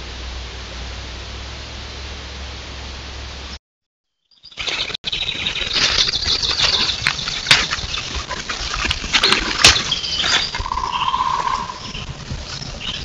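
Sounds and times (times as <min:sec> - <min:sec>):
footsteps in dry leaves: 0:04.4 - 0:13.0
twigs cracking: 0:04.6 - 0:12.7
steady whistle-like tone: 0:09.7 - 0:12.1.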